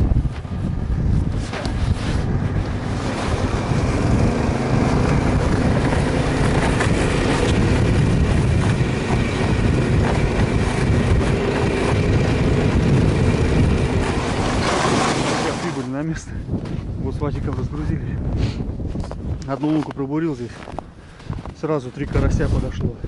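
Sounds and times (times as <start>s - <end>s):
towing engine running: 0.0s - 15.9s
sleds sliding over snow: 0.0s - 16.8s.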